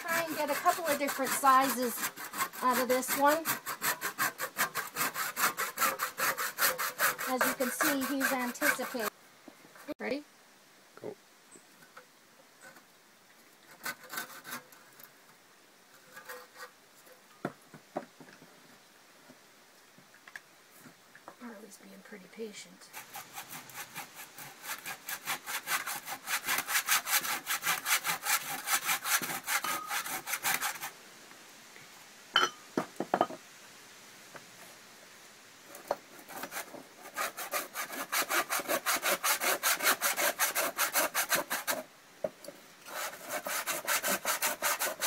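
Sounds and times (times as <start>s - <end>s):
hand saw cutting bone: 0.0s - 9.1s, 22.9s - 30.9s, 36.2s - 41.8s, 42.9s - 45.0s.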